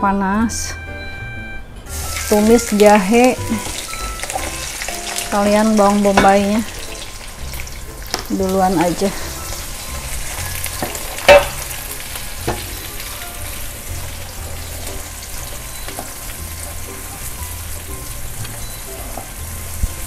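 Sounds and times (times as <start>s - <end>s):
food sizzling in hot oil: 1.9s - 20.0s
metal clank in wok: 3.6s - 5.3s, 9.5s - 11.8s, 12.4s - 13.0s.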